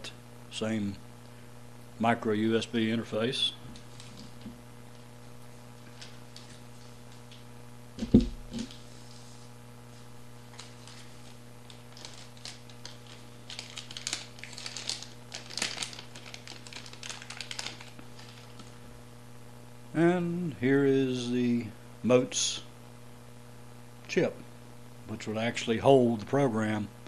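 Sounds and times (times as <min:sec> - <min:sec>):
low electrical hum: 0:00.0 - 0:27.0
plastic bags crinkling: 0:05.8 - 0:07.3, 0:10.4 - 0:18.8
low thump: 0:08.0 - 0:08.7.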